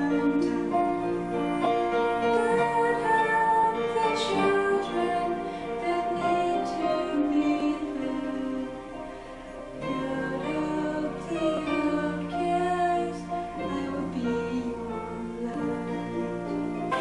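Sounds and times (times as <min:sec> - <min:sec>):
instrumental accompaniment: 0:00.0 - 0:17.0
woman singing a ballad: 0:00.0 - 0:17.0.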